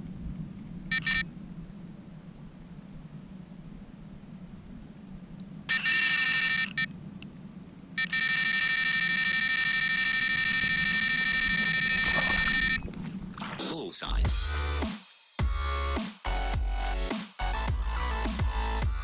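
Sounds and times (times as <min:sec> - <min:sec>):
electronic bite alarm tone: 0:00.9 - 0:01.3, 0:05.7 - 0:06.9, 0:08.0 - 0:13.0.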